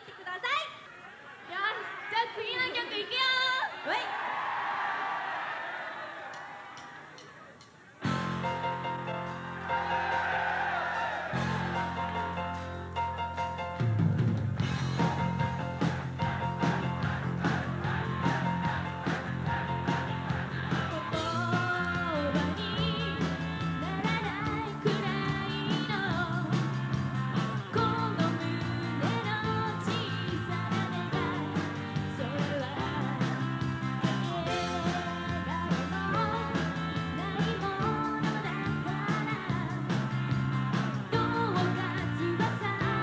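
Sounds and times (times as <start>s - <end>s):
drum kit: 6.3s - 43.0s
electric bass: 11.4s - 43.0s
woman singing: 20.8s - 40.4s, 41.0s - 43.0s.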